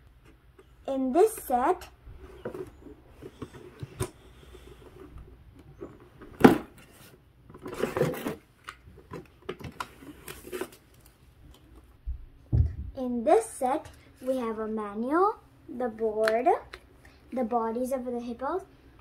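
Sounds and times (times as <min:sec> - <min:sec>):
cardboard box rustling and scraping: 0:06.4 - 0:08.5.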